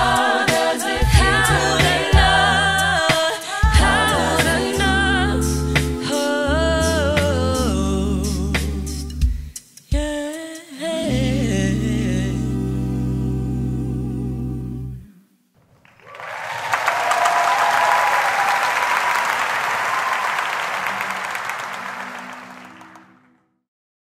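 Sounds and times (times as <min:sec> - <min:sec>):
women's a cappella singing: 0:00.0 - 0:09.2, 0:09.9 - 0:15.2
audience applause and cheering: 0:15.7 - 0:23.4.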